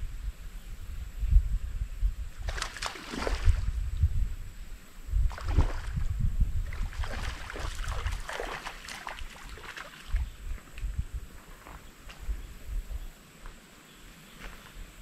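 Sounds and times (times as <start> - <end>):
wind rumble on microphone: 0.0 - 13.6
water sloshing and splashing: 2.4 - 3.7, 5.3 - 10.3.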